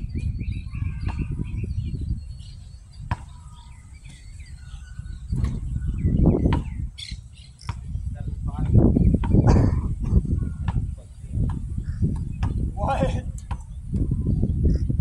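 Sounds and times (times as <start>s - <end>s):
birds chirping: 0.0s - 15.0s
wind on microphone: 0.0s - 15.0s
basketball bouncing: 3.1s - 4.3s, 6.4s - 6.8s, 7.6s - 8.0s, 10.6s - 12.7s, 13.4s - 14.1s.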